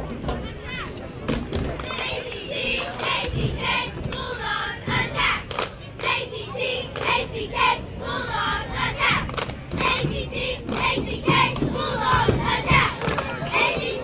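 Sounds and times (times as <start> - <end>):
girls chanting a cheer: 1.8 - 14.0
sharp claps: 4.9 - 6.2, 9.3 - 10.0, 10.7 - 11.0, 12.8 - 13.8.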